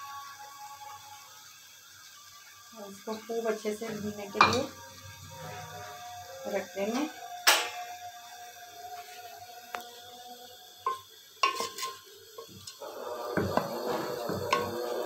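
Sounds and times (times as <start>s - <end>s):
wooden spoon stirring in pot: 10.8s - 15.0s
spoon knocking on pot: 13.3s - 14.9s.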